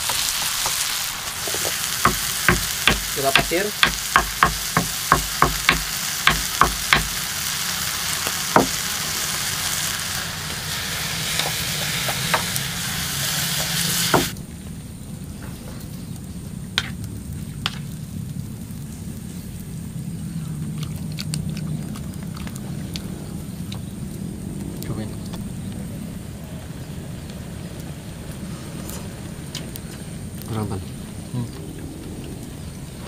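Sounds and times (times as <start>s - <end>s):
vegetables sizzling in a pan: 0.0s - 14.4s
sharp taps: 2.0s - 7.2s.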